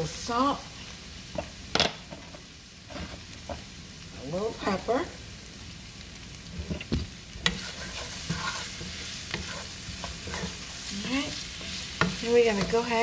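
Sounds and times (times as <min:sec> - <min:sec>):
food sizzling in a frying pan: 0:00.0 - 0:13.0
wooden spatula stirring: 0:06.6 - 0:13.0.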